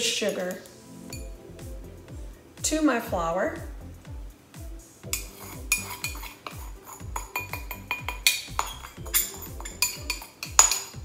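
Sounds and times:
metal spoon clinking on glass bowl: 5.2s - 11.0s.

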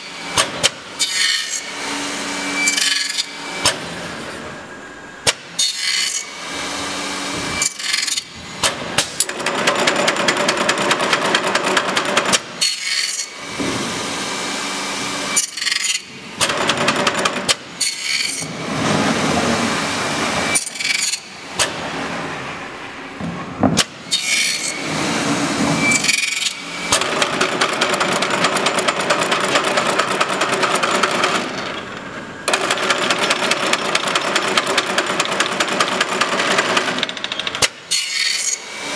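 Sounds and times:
machine sharp clacks: 7.6s - 13.9s, 15.3s - 18.5s, 25.9s - 31.9s, 32.5s - 38.4s.

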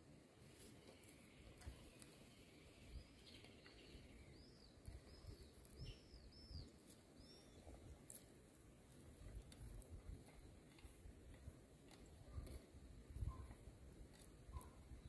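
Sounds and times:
faint bird chirping: 0.4s - 8.3s, 12.0s - 15.0s.

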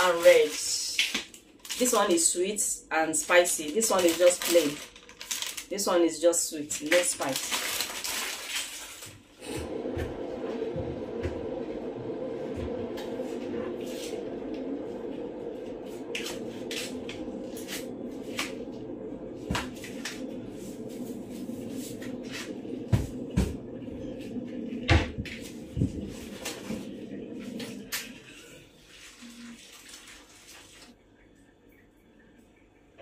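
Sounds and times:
steady low hum: 9.3s - 28.9s.

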